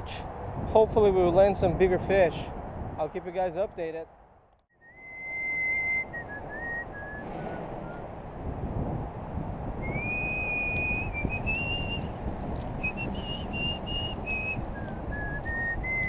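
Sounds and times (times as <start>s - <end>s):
wind rumble on microphone: 0.0s - 3.8s, 4.9s - 16.0s
person whistling a slow tune: 4.8s - 8.0s, 9.8s - 12.0s, 12.9s - 16.0s.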